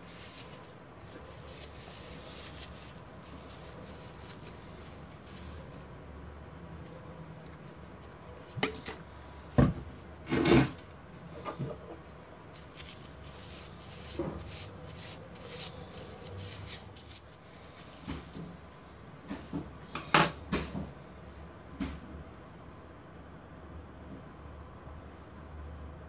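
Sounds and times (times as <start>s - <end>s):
paper towel rubbing metal: 0.0s - 5.7s, 12.6s - 17.4s.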